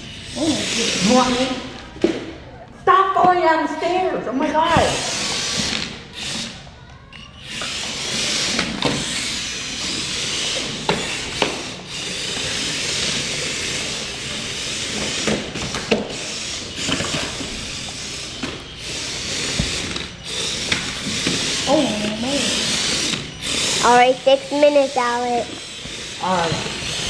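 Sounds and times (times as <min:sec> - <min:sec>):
toy vehicle motors whirring: 0:00.0 - 0:02.4, 0:04.6 - 0:27.0.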